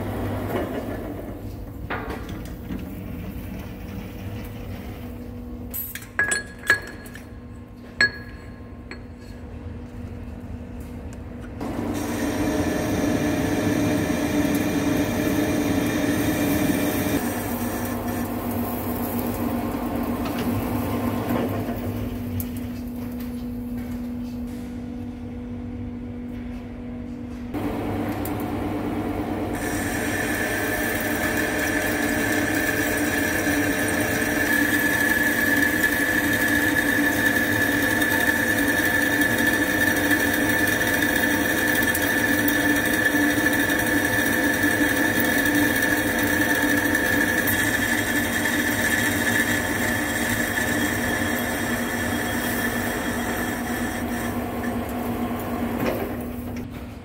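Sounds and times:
high whine from cutting: 11.6s - 20.8s
lathe machine hum: 11.6s - 22.2s, 27.6s - 56.6s.

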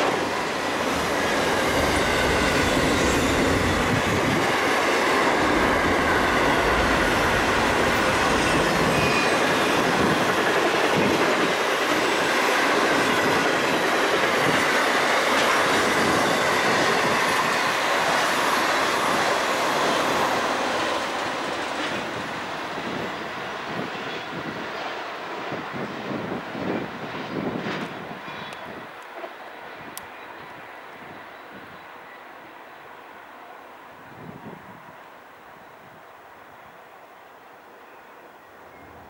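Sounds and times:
freight train wheels rumbling: 0.0s - 31.8s
faint high wheel squeal: 8.0s - 9.6s, 28.2s - 28.8s.

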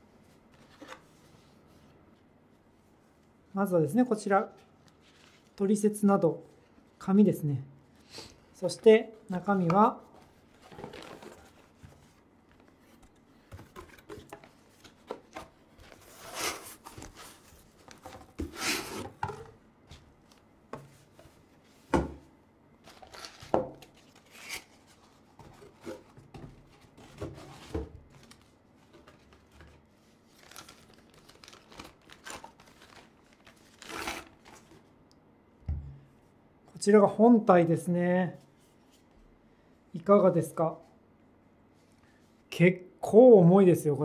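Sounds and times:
packaging rustling and scraping: 10.2s - 19.4s, 22.8s - 34.9s.

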